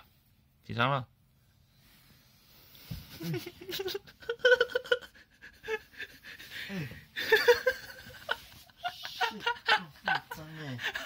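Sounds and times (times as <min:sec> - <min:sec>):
stifled breathy laughter: 0:03.1 - 0:11.0.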